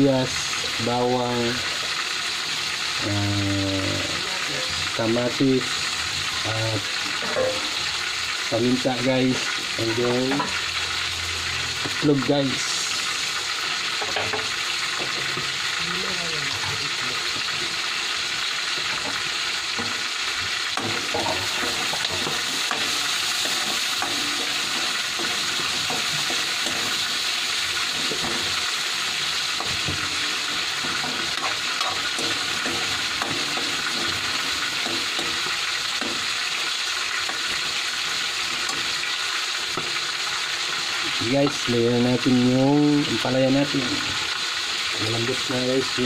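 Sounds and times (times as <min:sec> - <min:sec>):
food sizzling in a frying pan: 0:00.0 - 0:46.0
spatula scraping a pan: 0:18.5 - 0:41.2.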